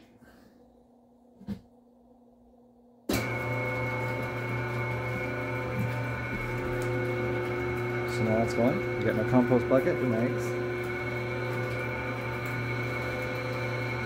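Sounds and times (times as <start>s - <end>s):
dough mixer humming and whining: 3.1s - 14.0s.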